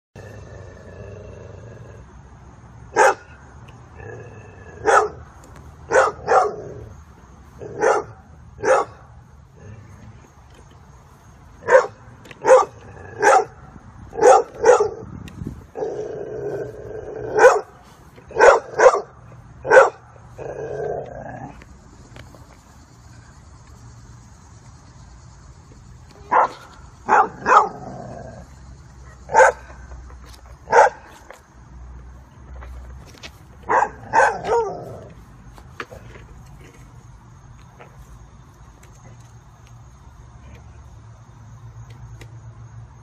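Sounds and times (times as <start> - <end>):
dog barking: 3.0 - 3.3, 4.8 - 5.2, 5.9 - 6.6, 7.8 - 9.0, 11.6 - 13.6, 14.2 - 15.0, 17.4 - 17.7, 18.4 - 19.1, 19.7 - 20.0, 26.3 - 27.8, 29.3 - 29.6, 30.7 - 31.0, 33.7 - 34.8.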